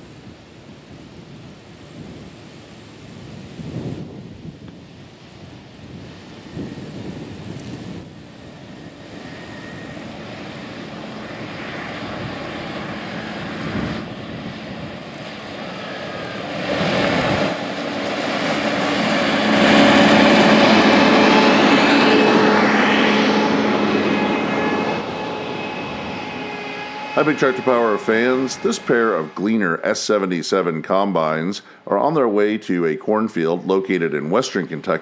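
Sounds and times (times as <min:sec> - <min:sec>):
combine diesel engines driving past: 0:08.2 - 0:30.3.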